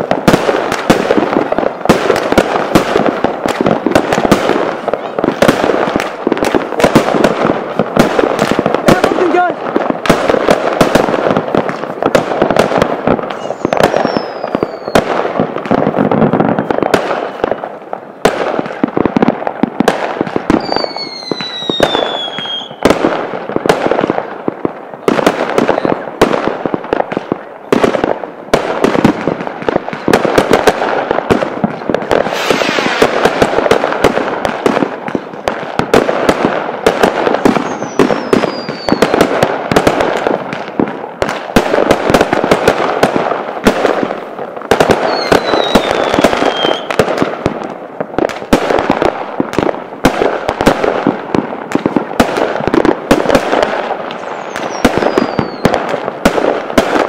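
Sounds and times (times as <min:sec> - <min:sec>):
fireworks bangs and crackles: 0:00.0 - 0:57.0
falling firework whistles: 0:13.3 - 0:15.1, 0:20.5 - 0:22.9, 0:32.2 - 0:33.2, 0:37.5 - 0:39.2, 0:45.0 - 0:47.0, 0:54.2 - 0:55.7.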